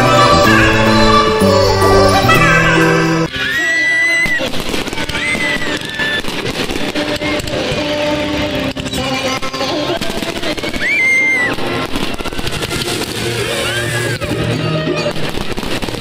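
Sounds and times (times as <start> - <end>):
background music: 0.0 - 10.7, 11.3 - 16.0
fireworks crackling and popping: 4.0 - 16.0.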